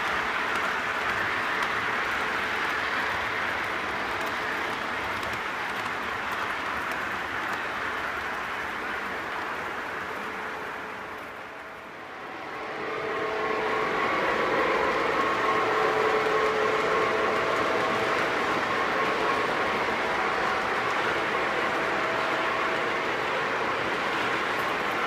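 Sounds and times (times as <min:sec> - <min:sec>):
model train rumbling on track: 0:00.0 - 0:25.0
steady hum of held tones: 0:11.3 - 0:25.0.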